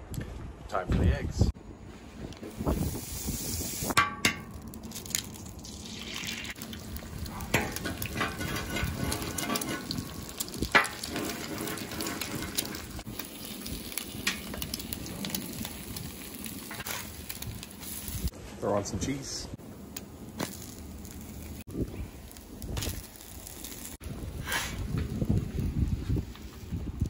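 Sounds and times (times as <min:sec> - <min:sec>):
eggs sizzling on griddle: 0:02.6 - 0:18.3, 0:20.3 - 0:25.6.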